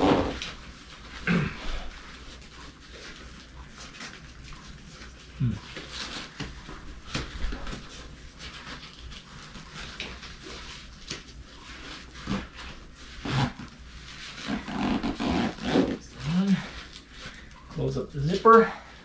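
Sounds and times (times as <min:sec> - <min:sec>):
person grunting: 0:01.2 - 0:01.8.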